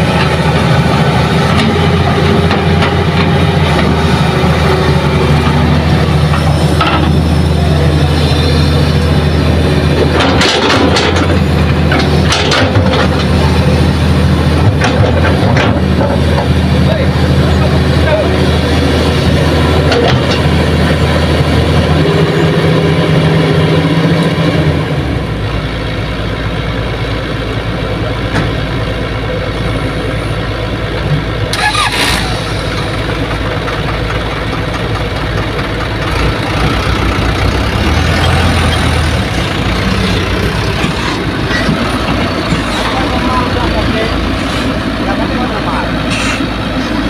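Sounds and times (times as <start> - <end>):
dump truck engine: 0.0 - 47.0
excavator diesel engine running: 0.0 - 47.0.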